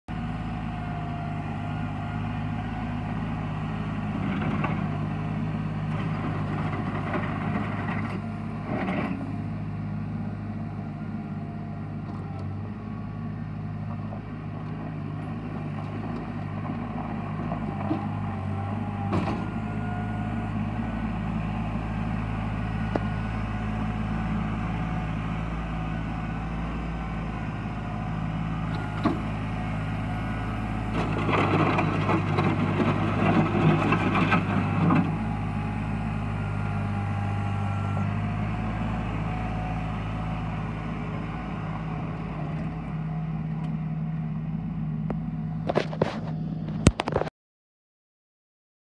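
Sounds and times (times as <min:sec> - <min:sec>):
tractor diesel engine running: 0:00.1 - 0:47.3
tyres on gravel: 0:28.7 - 0:36.4, 0:45.6 - 0:47.3.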